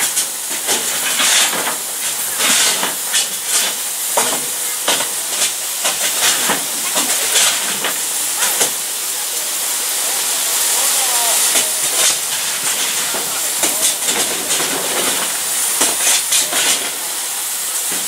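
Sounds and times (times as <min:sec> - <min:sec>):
sharp steam spurts: 0:00.0 - 0:18.0
steam hissing: 0:00.0 - 0:18.0.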